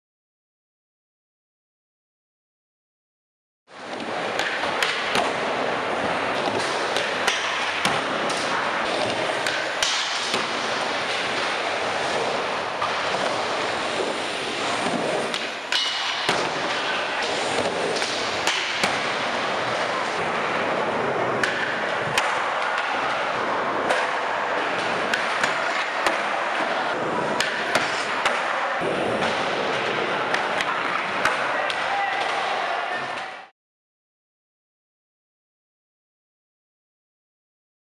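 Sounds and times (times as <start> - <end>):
skateboard wheels rolling: 3.7 - 33.2
skateboard clacking and landing: 3.8 - 32.6.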